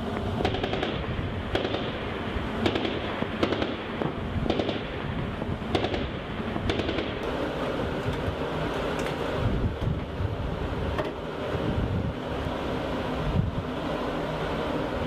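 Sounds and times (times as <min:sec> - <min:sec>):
heavy gunshots: 0:00.4 - 0:07.2.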